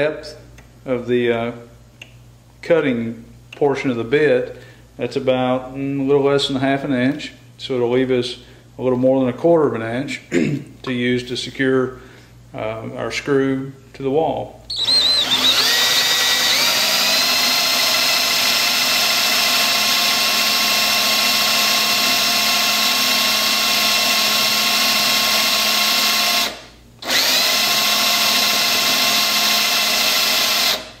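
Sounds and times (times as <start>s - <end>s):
power drill boring into wood: 14.7s - 31.0s.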